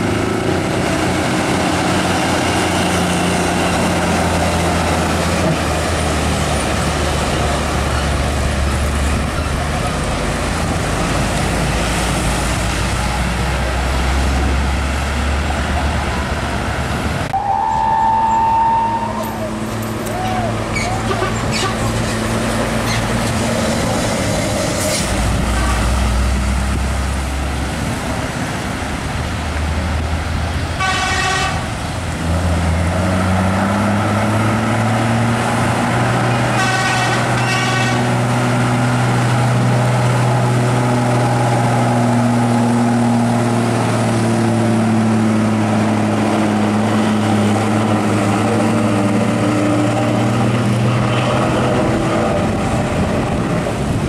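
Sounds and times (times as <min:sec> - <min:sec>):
diesel trucks engines: 0:00.0 - 0:54.0
truck horn toots: 0:17.4 - 0:22.0, 0:25.5 - 0:26.0, 0:30.8 - 0:31.8, 0:36.4 - 0:38.3.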